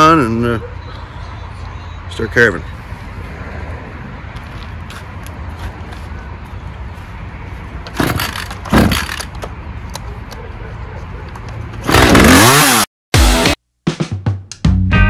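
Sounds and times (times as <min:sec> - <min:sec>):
chainsaw engine revving: 0:11.8 - 0:13.5.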